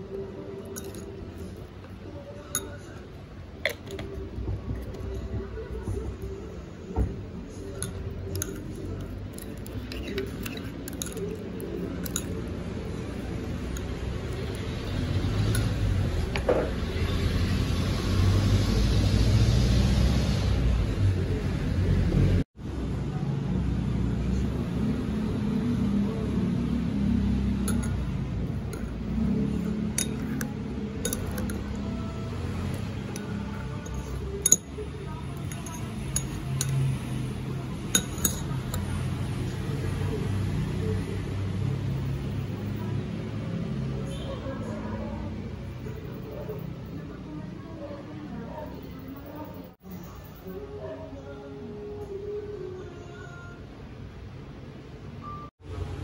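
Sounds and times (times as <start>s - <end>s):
spoon clinking against bowl: 0.0s - 1.7s, 2.3s - 5.1s, 7.6s - 16.2s, 27.5s - 39.1s
spoon stirring liquid in bowl: 0.0s - 6.4s, 7.4s - 16.3s, 27.2s - 39.6s.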